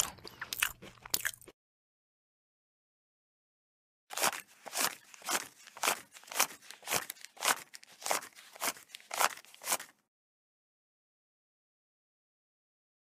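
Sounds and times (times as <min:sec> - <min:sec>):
cat chewing: 0:04.2 - 0:09.9.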